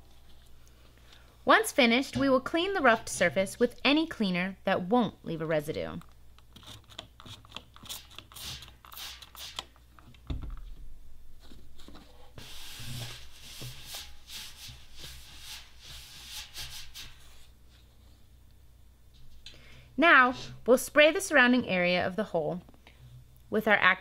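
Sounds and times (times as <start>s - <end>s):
spray bottle squirting: 7.1s - 9.8s
paper towel wiping metal: 12.4s - 17.5s.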